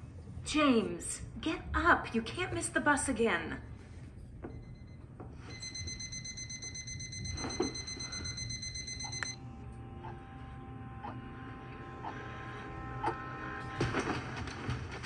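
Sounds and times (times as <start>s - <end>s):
alarm clock electronic tone: 4.5s - 13.9s.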